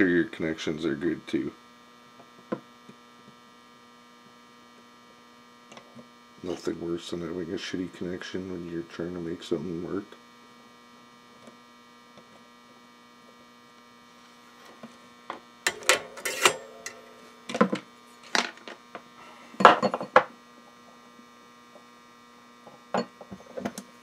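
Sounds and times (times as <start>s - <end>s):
power inverter humming: 0.0s - 24.0s
tools and metal clinking: 15.7s - 17.8s.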